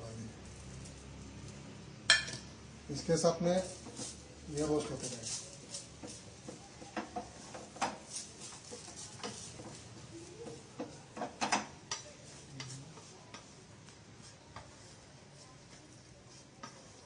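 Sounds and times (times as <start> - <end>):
wooden spatula scraping steel pan: 3.6 - 11.4.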